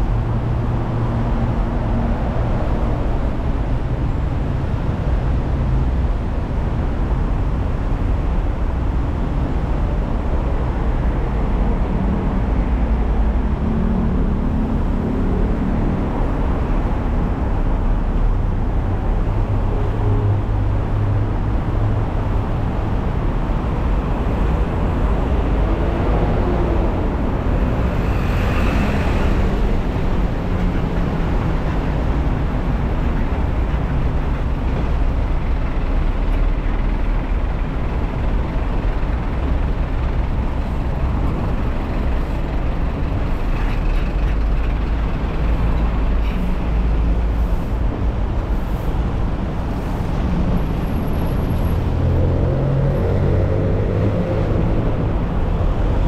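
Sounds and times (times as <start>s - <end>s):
car road and engine noise: 0.0s - 56.0s.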